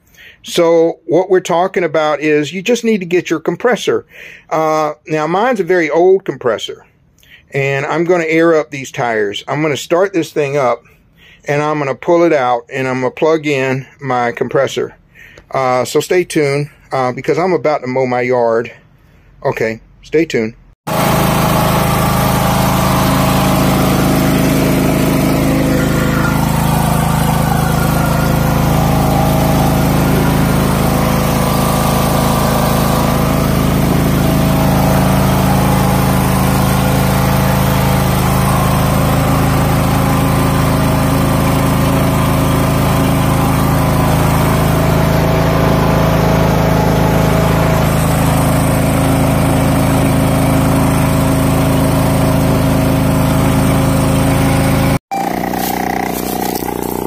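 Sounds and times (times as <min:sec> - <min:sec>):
lawn mower engine running: 0:20.9 - 0:57.0.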